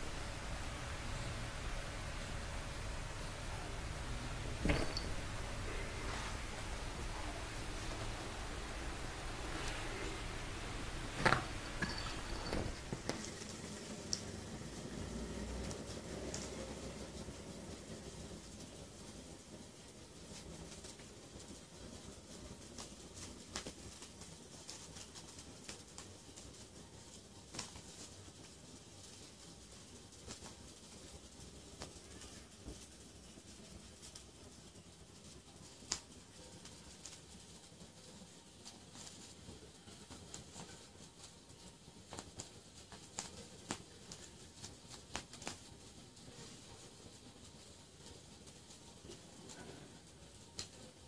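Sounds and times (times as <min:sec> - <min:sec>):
kittens scrabbling on bedding: 0:00.0 - 0:13.6
low room noise: 0:00.0 - 0:51.0.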